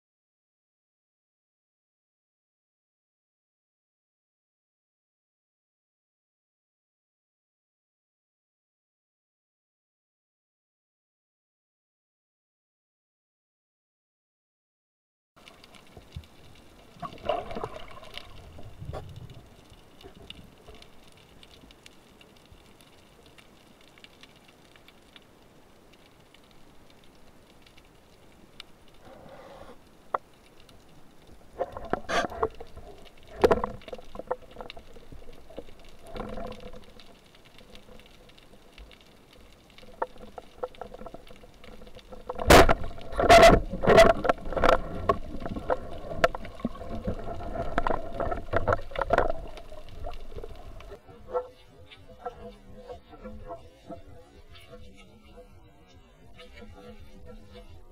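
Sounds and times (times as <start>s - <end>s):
underwater bubbling: 15.4s - 57.9s
faint underwater hiss: 15.5s - 41.7s
sharp clacks underwater: 17.0s - 21.7s, 31.5s - 51.5s.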